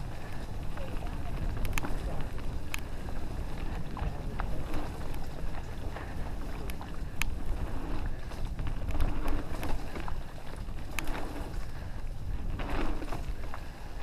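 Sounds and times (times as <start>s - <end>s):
low rumble of riding: 0.0s - 14.0s
wind on microphone: 0.0s - 14.0s
sharp clicks and rattles: 0.4s - 6.0s.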